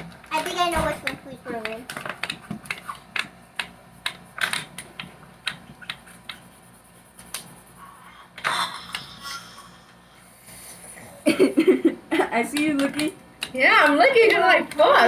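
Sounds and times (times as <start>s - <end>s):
marker tips knocking on paper: 0.0s - 6.5s, 12.5s - 15.0s
markers tapping on counter: 0.0s - 6.5s, 12.4s - 15.0s
marker caps clicking: 0.4s - 6.4s, 12.5s - 14.9s.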